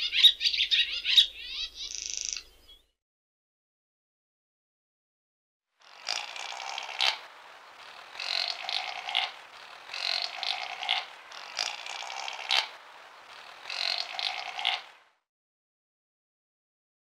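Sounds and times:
raspy animal calls: 0:05.8 - 0:15.1.

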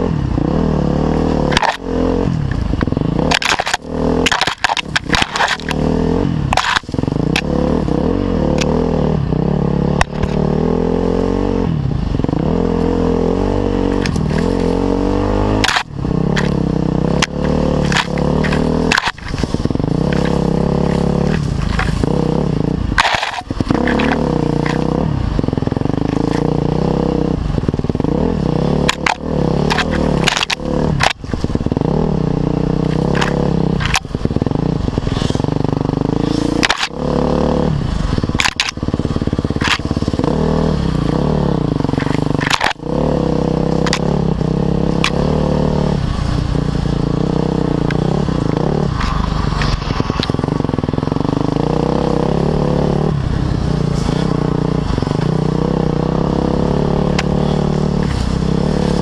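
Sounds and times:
motorcycle engine revving: 0:00.0 - 0:59.0
sharp knocks and scrapes: 0:01.3 - 0:01.9, 0:02.5 - 0:07.5, 0:15.5 - 0:25.0, 0:28.8 - 0:31.8, 0:32.8 - 0:37.0, 0:38.1 - 0:40.4, 0:41.8 - 0:42.9, 0:48.8 - 0:50.8.

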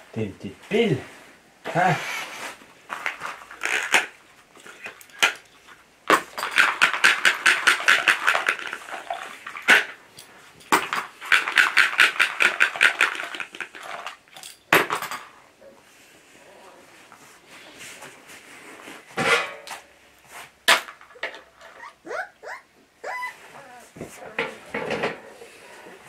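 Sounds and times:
metallic rattle shaken by hand: 0:06.2 - 0:09.9, 0:10.6 - 0:15.2.

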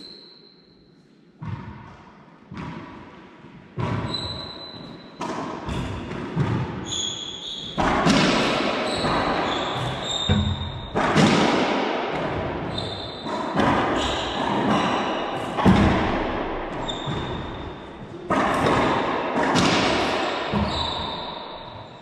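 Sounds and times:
ball hitting court walls: 0:05.2 - 0:07.0, 0:07.6 - 0:21.9
racquets striking ball: 0:07.7 - 0:21.8
high squeaks: 0:08.9 - 0:11.0.

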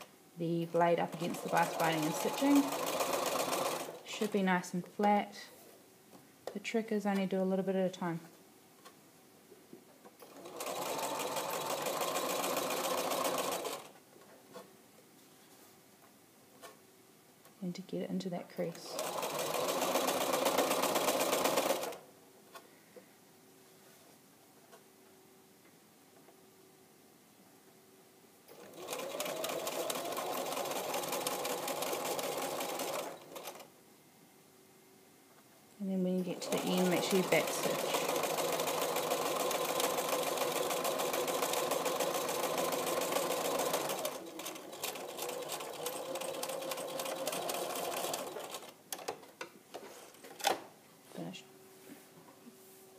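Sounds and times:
sewing machine rattling: 0:01.1 - 0:04.3, 0:10.2 - 0:13.9, 0:18.9 - 0:22.0, 0:28.5 - 0:33.7, 0:36.3 - 0:49.2.

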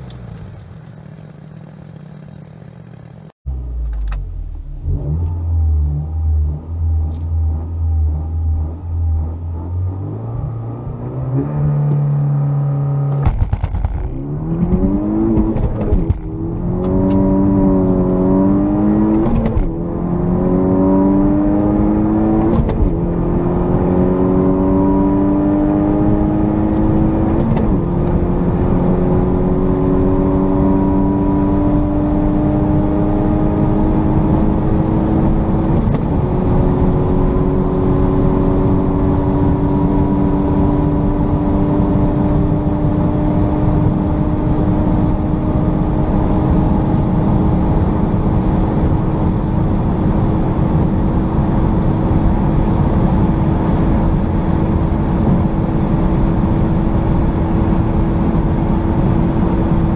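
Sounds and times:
car engine revving and accelerating: 0:03.5 - 0:59.9.

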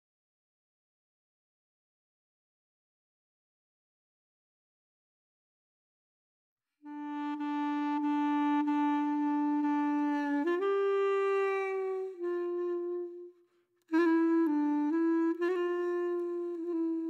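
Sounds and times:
solo reed woodwind melody: 0:06.8 - 0:17.0.

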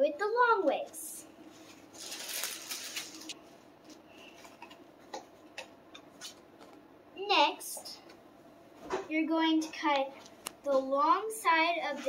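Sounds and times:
card rustling and creasing: 0:01.7 - 0:03.4.

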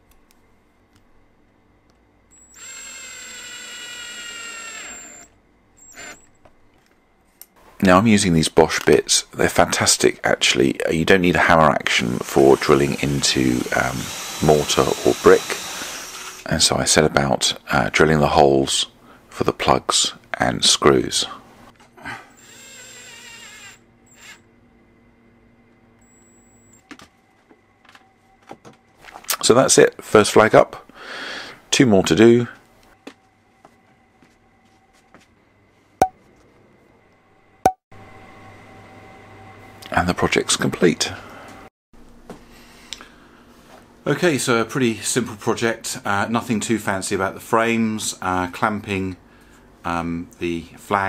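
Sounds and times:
cordless drill whining: 0:02.3 - 0:06.3, 0:12.2 - 0:16.5, 0:22.3 - 0:24.4.

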